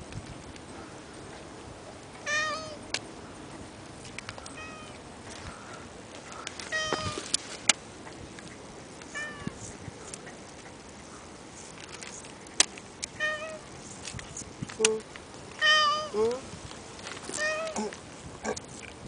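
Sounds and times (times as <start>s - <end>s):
cat meowing: 2.3s - 2.8s, 6.7s - 7.2s, 9.2s - 9.6s, 13.2s - 13.6s, 15.6s - 16.2s, 17.4s - 18.0s.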